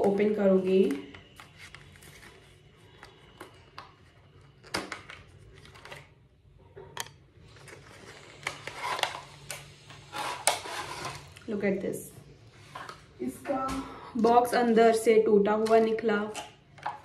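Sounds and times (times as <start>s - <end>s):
cardboard scrape: 10.0s - 11.3s.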